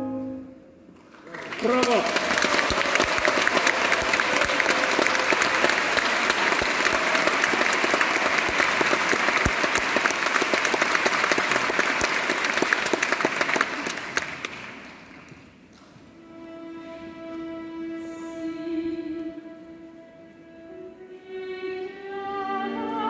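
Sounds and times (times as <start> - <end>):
audience applauding: 1.0 - 15.6.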